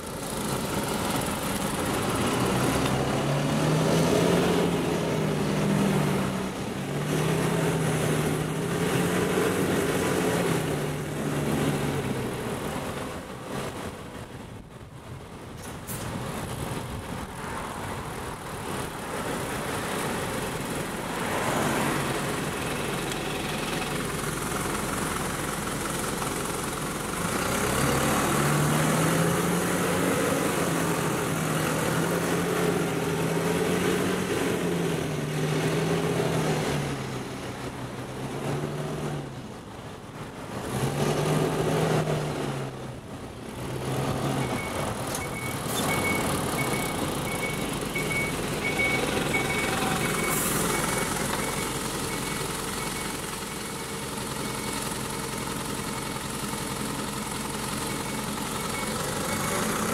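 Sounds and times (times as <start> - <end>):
road traffic passing: 0.0 - 59.9
reversing alarm beeping: 44.4 - 53.6.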